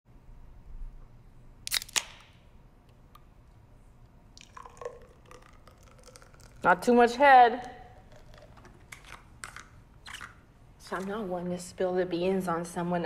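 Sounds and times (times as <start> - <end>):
beer can cracked open: 1.7 - 2.4
beer gurgling as poured: 4.4 - 6.9, 7.7 - 8.9.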